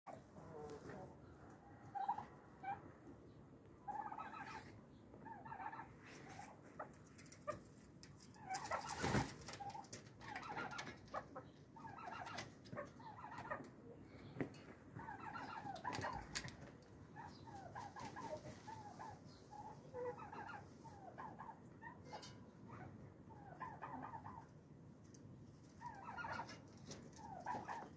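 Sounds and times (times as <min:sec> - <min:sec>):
chickens clucking: 0:00.1 - 0:27.9
wings flapping: 0:08.4 - 0:10.9.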